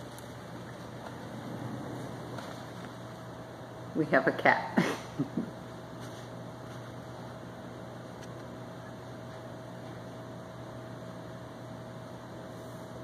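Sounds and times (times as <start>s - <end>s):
faint thin whine: 0.0s - 3.7s
low hum: 0.0s - 12.8s.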